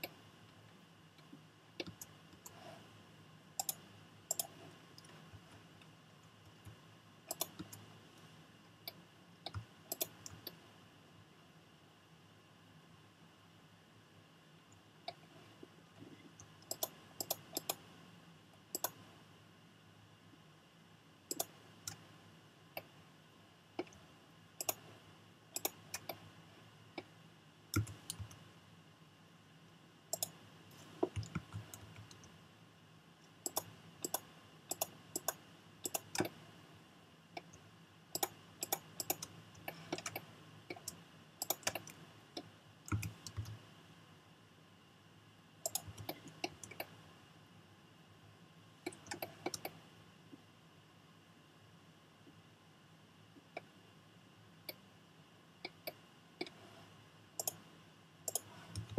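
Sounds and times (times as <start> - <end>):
faint steady hum: 0.0 - 58.9
mouse buttons clicking: 3.6 - 5.2, 7.3 - 7.8, 8.9 - 10.6, 16.4 - 17.8, 18.7 - 19.0, 21.3 - 22.0, 24.6 - 24.8, 25.6 - 26.2, 27.7 - 28.4, 30.1 - 32.3, 33.4 - 36.4, 37.4 - 43.6, 45.6 - 46.9, 48.9 - 49.8, 55.6 - 56.6, 57.4 - 57.6, 58.3 - 58.9.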